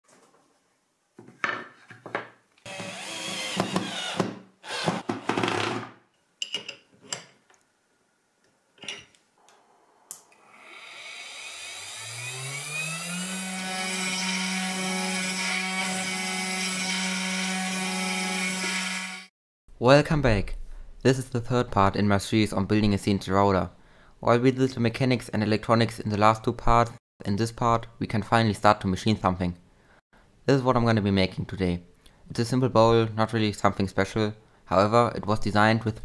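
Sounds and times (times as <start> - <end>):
wood knocking and scraping: 1.2 - 2.4
router spindle motor whine: 2.7 - 4.2, 10.3 - 16.0.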